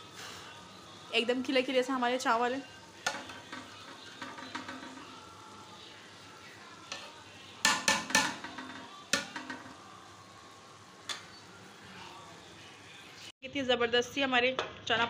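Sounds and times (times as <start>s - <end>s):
spoon knocking against pot: 3.0s - 5.1s, 7.6s - 9.8s
metal spoon stirring rice in pot: 3.0s - 5.2s.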